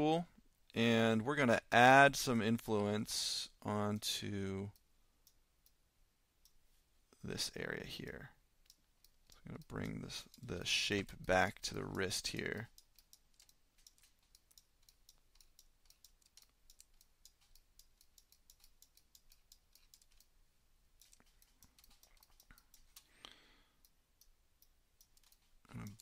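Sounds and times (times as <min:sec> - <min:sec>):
mouse and keyboard clicking: 0:11.1 - 0:20.3, 0:21.0 - 0:23.1, 0:25.0 - 0:26.0.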